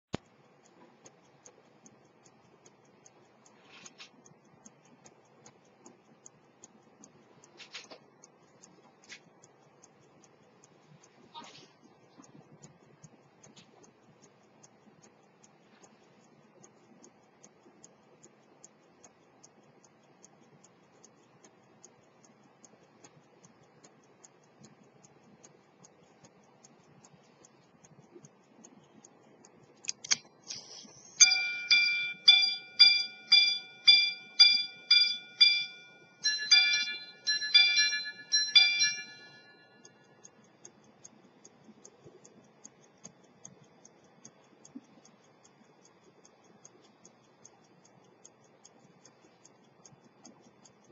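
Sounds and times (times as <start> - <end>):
repeater click and whirr: 0.1 - 50.9
pocket watch ticking: 0.2 - 50.9
watch gongs striking: 31.2 - 39.5.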